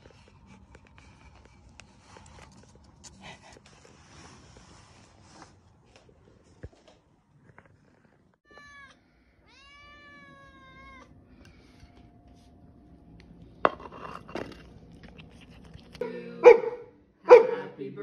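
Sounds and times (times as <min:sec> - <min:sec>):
cat meowing: 0:08.4 - 0:11.1.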